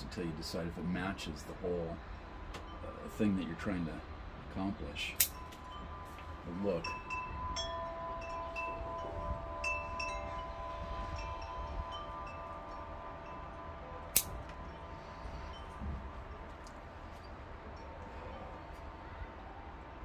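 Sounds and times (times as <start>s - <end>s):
pruning scissors snip: 5.2s - 5.4s, 14.2s - 14.4s
chimes ringing: 5.3s - 18.6s.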